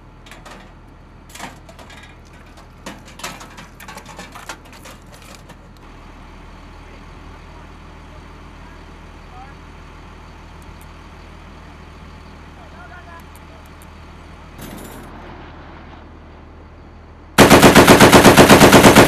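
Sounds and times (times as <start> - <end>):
engine idling hum: 0.0 - 19.0.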